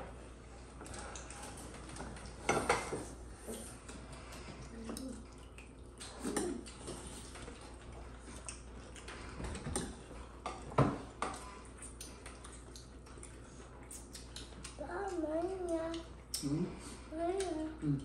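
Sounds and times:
dishes and cutlery clinking: 0:00.8 - 0:03.1.

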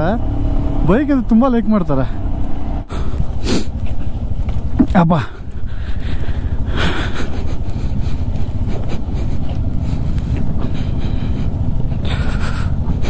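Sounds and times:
motorcycle engine rumbling: 0:00.0 - 0:13.0
wind buffeting microphone: 0:02.1 - 0:13.0.

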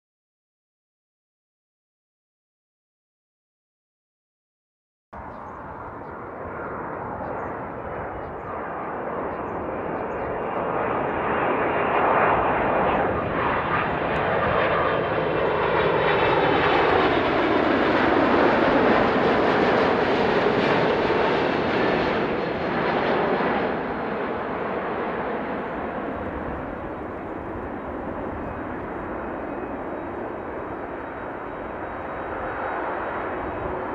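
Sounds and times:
jet engines passing overhead: 0:05.2 - 0:33.9.

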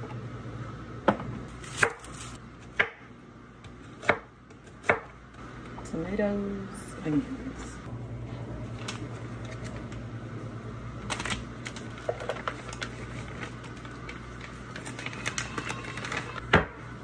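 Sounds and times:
paper pouch crinkling: 0:11.1 - 0:16.4.

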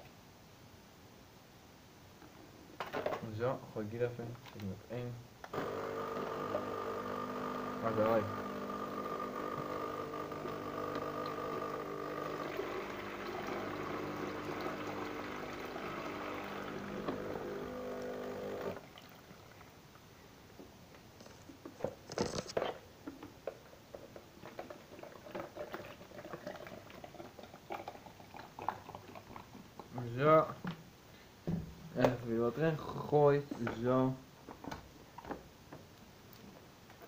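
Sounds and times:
electric appliance hum: 0:05.5 - 0:18.8.

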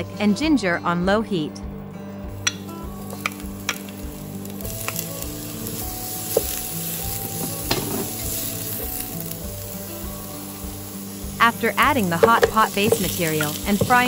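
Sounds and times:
aromatics sizzling in oil: 0:02.4 - 0:14.0
spatula knocking against pot: 0:12.1 - 0:14.0.

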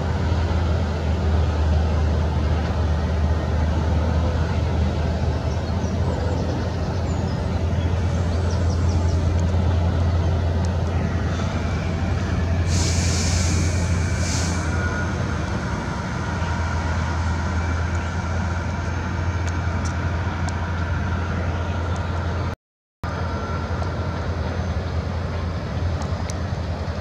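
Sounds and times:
distant traffic and machinery rumble: 0:00.0 - 0:27.0
brief hisses: 0:12.6 - 0:15.0.

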